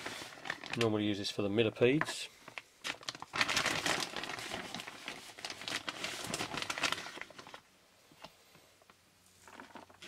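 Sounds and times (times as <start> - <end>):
plastic bag crinkling: 0.0 - 1.4, 2.4 - 7.7, 9.4 - 10.0.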